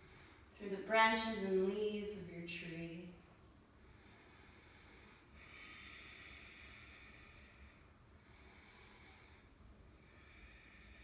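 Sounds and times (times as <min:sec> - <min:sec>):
slow breathing: 0:00.0 - 0:00.6, 0:03.6 - 0:11.0.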